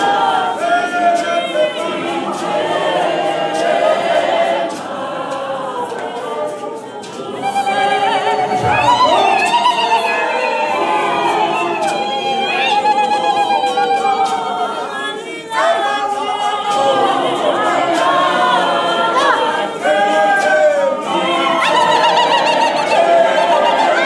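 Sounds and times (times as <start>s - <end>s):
group singing unaccompanied: 0.0s - 24.0s.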